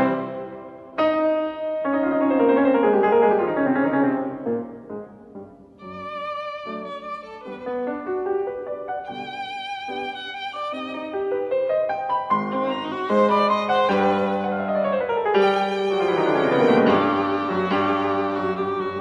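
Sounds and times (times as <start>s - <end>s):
piano notes and chords: 0.0s - 19.0s
violin melody with vibrato: 5.8s - 19.0s.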